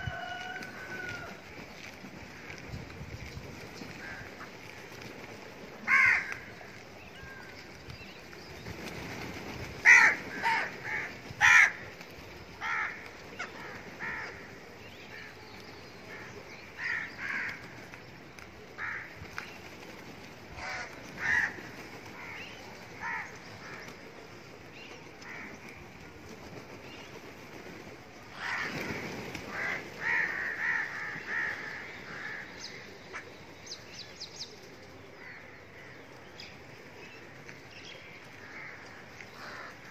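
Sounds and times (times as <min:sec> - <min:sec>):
crows cawing: 0:04.0 - 0:04.5, 0:05.8 - 0:06.5, 0:09.8 - 0:11.9, 0:12.6 - 0:14.5, 0:16.1 - 0:17.8, 0:18.8 - 0:19.2, 0:20.6 - 0:23.9, 0:25.2 - 0:25.7, 0:28.3 - 0:33.2, 0:38.4 - 0:39.9.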